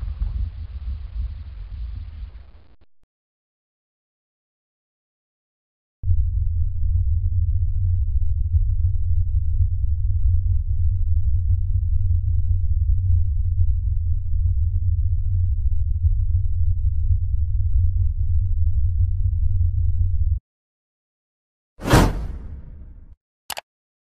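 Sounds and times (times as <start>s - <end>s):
deep rumble of wind: 0.0s - 2.8s, 6.0s - 20.4s.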